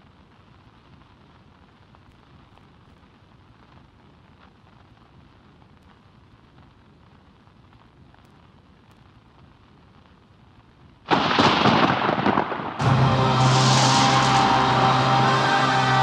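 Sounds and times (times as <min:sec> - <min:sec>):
crackle clicks and pops: 0:00.0 - 0:12.8
faint steady hiss: 0:00.0 - 0:16.0.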